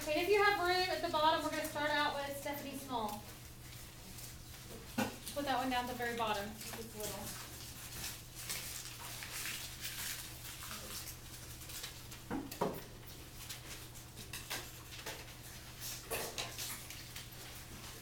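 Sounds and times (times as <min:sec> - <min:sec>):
paper rustling: 0:00.0 - 0:12.3.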